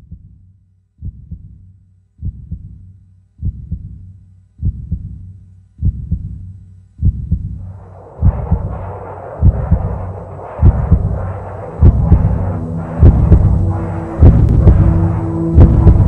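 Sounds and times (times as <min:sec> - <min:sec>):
heartbeat thumps: 0:00.0 - 0:16.0
rushing rumble: 0:07.1 - 0:16.0.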